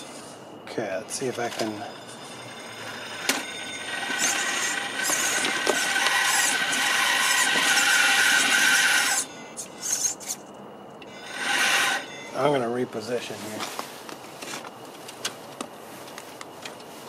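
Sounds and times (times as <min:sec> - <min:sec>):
electric motor and gears whining: 0:00.0 - 0:12.8.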